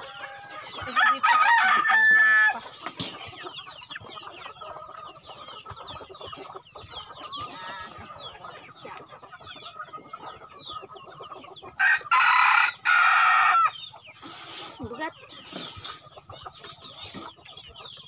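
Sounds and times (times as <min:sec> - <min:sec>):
rooster crowing: 0:00.0 - 0:02.6, 0:11.8 - 0:13.8
chickens clucking: 0:00.0 - 0:18.0.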